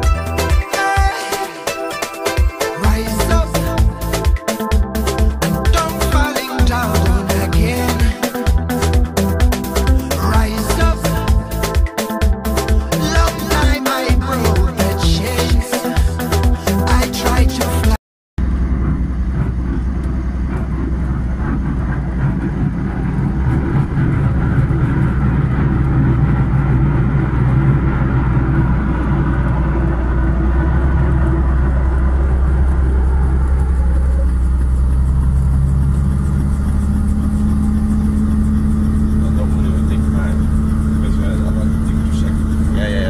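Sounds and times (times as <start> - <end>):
helicopter engine and rotor drone: 18.4 - 43.0.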